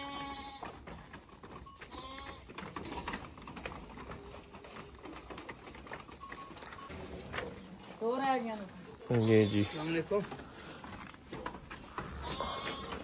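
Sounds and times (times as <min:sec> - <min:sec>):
sheep bleating: 0:00.0 - 0:00.7, 0:01.9 - 0:02.5, 0:09.1 - 0:10.3, 0:11.9 - 0:13.0
hooves on plastic ramp: 0:00.0 - 0:08.8, 0:09.5 - 0:13.0.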